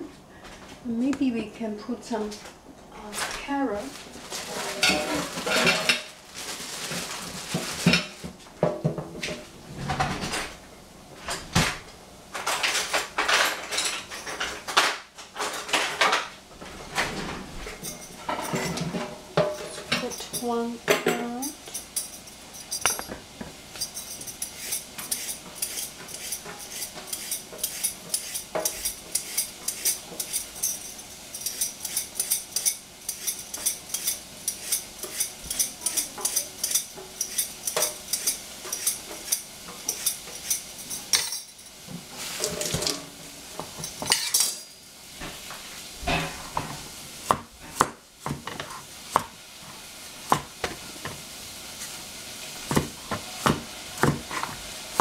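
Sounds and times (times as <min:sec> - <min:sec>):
peeler scraping carrot: 0:24.2 - 0:30.6, 0:31.4 - 0:40.6
cleaver chopping on cutting board: 0:52.7 - 0:54.6.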